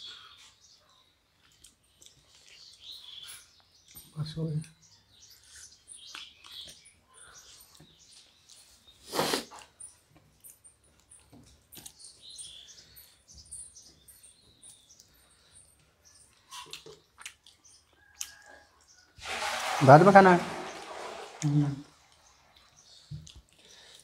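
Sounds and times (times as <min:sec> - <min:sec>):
chewing and mouth smacks: 0:01.4 - 0:03.2, 0:16.3 - 0:19.0, 0:22.1 - 0:24.0
fingers squishing food on plates: 0:15.9 - 0:19.1, 0:22.1 - 0:24.0.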